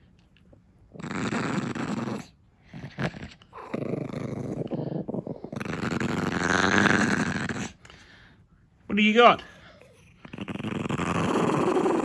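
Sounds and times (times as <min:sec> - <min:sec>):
small dog growling: 0:00.9 - 0:07.8, 0:09.7 - 0:12.0.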